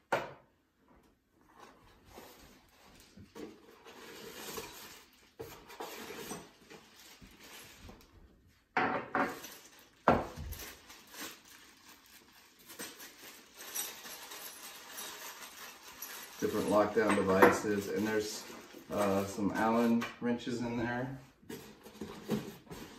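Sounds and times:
plastic bags crinkling: 2.0s - 8.4s, 9.3s - 19.9s
loose metal pieces clinking: 12.6s - 19.2s.

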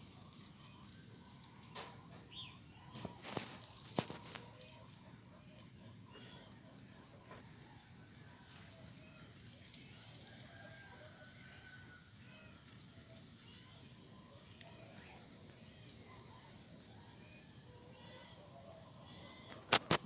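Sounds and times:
faint high chirp: 0.2s - 6.9s, 11.6s - 19.7s.

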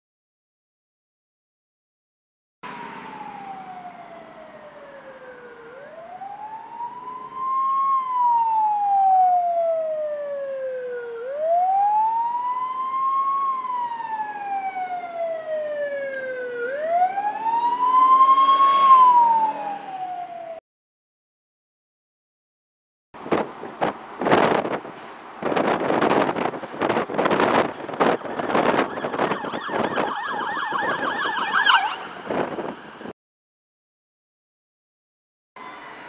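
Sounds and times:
ambulance siren wailing: 2.6s - 20.6s, 27.2s - 33.1s.

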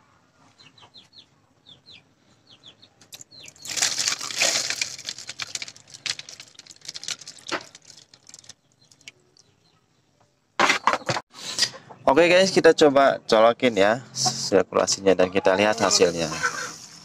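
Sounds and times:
water splashing and trickling: 3.2s - 9.7s
water pouring into a plastic tray: 3.6s - 9.2s.

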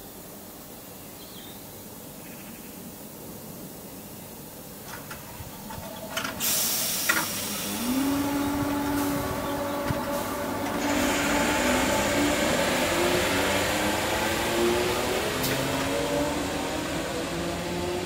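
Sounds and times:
rush of train noise: 2.8s - 18.0s
train motors whining: 4.9s - 18.0s.

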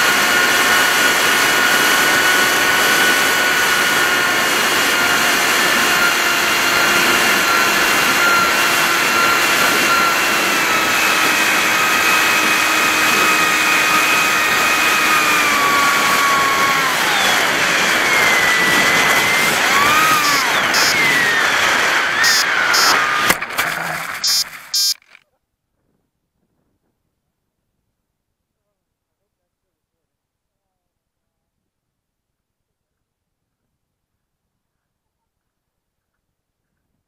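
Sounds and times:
model plane motor whining: 0.0s - 25.0s.

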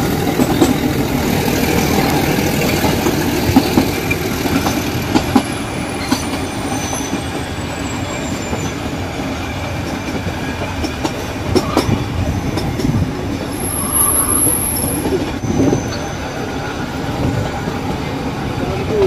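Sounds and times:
train carriage rumble and rattle: 0.0s - 19.0s
train wheel clicks: 0.1s - 7.3s, 9.8s - 16.1s
high-pitched wheel squeal: 13.5s - 16.4s.

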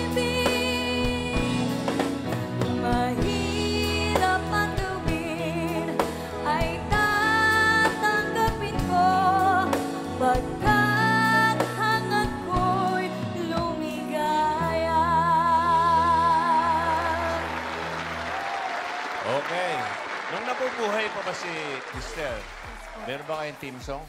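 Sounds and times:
woman singing with vibrato: 0.0s - 1.8s, 2.7s - 17.8s
instrumental backing music: 0.0s - 18.6s.

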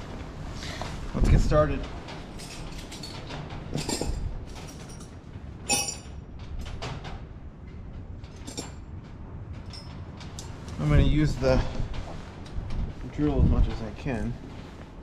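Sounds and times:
metal tools knocking and rustling: 2.1s - 7.2s, 8.2s - 10.6s
sharp metallic clink: 5.7s - 6.1s.

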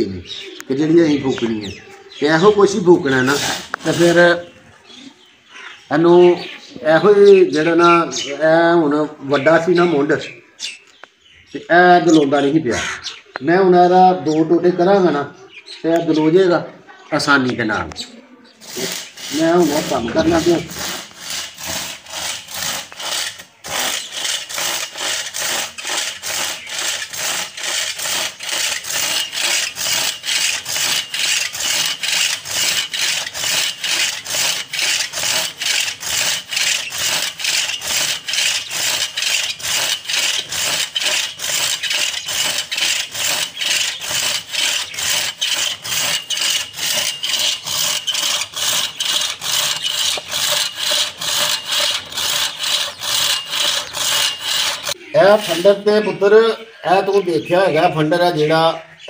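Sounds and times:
hand saw rasping through wood: 2.4s - 4.4s, 18.6s - 56.0s.

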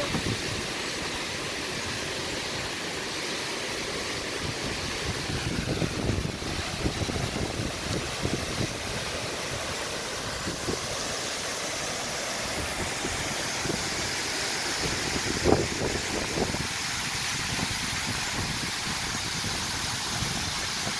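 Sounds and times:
waterfall rushing: 0.0s - 20.9s
wind buffeting microphone: 4.4s - 9.1s, 14.8s - 20.9s.

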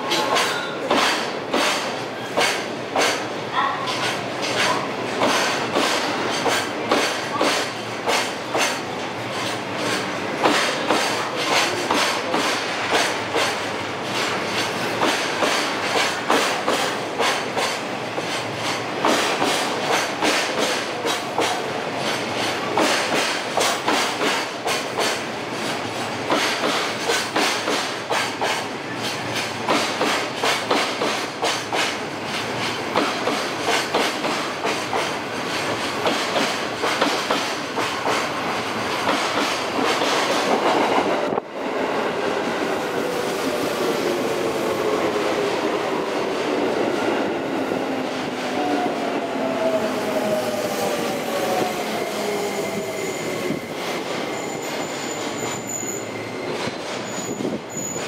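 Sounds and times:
train wheels clacking over rail joints: 0.0s - 41.4s.

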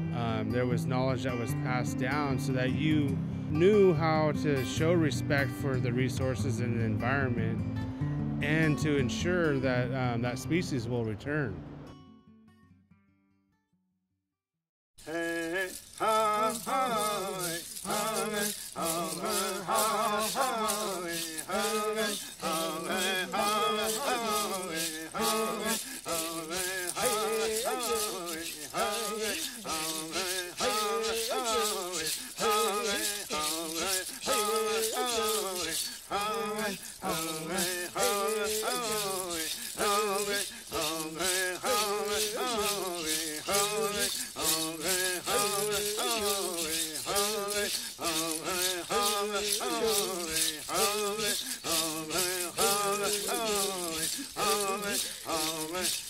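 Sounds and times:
person singing: 15.0s - 56.0s
shaken rattle: 15.0s - 56.0s.

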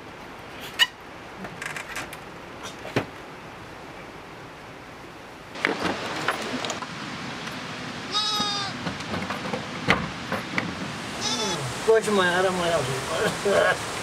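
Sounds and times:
livestock bleating: 8.1s - 8.8s, 11.2s - 11.7s.

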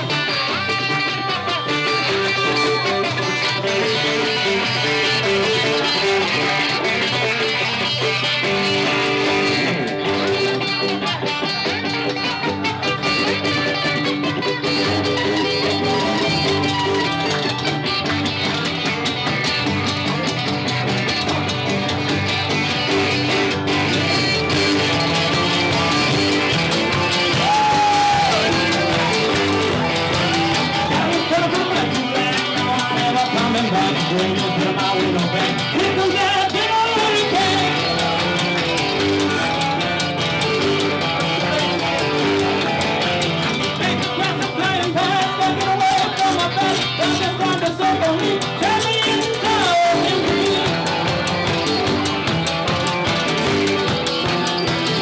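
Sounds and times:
man singing lead: 0.0s - 18.5s, 23.9s - 40.2s, 41.0s - 52.1s
band playing live: 0.0s - 55.0s
strummed guitars: 0.0s - 55.0s.

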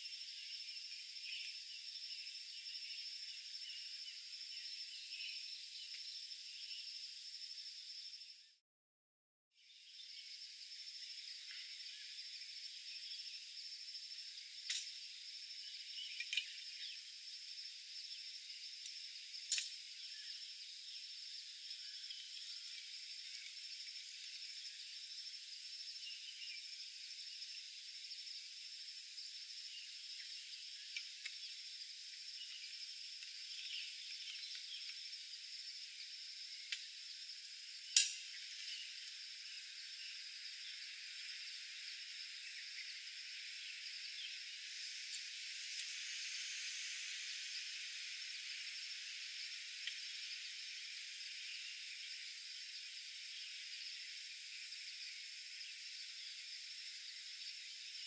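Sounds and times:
metal clink: 38.0s - 38.3s
faint high hiss: 44.4s - 52.8s.

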